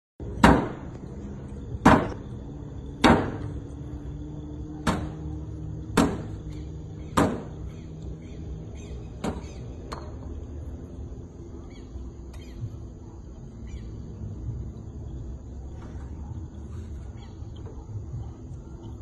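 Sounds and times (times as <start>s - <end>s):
sharp blows on car body: 0.4s - 1.0s, 1.8s - 2.2s, 3.0s - 3.5s, 4.8s - 5.3s, 5.9s - 7.6s, 9.2s - 10.0s.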